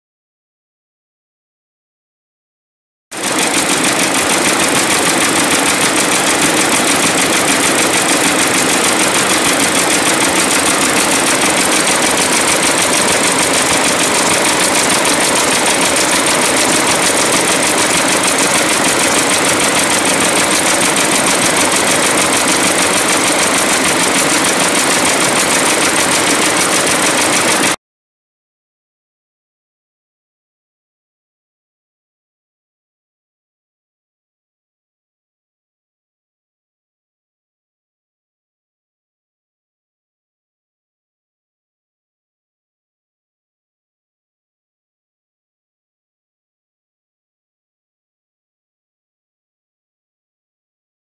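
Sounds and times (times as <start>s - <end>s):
sewing machine stitching: 3.2s - 27.8s.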